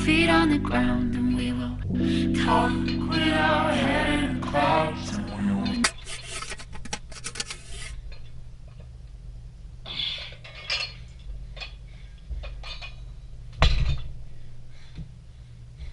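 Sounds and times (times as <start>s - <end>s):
weight plates clinking: 9.9s - 11.8s, 12.4s - 14.2s
dumbbells thudding down: 13.6s - 14.2s.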